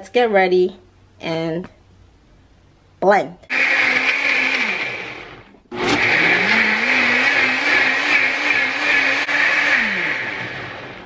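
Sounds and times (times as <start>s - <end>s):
blender motor whirring: 3.5s - 11.0s.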